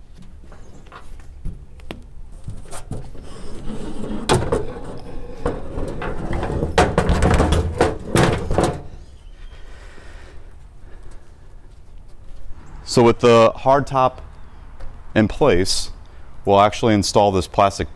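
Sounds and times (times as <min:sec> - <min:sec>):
hard lid knocking and clattering: 0:05.4 - 0:08.9.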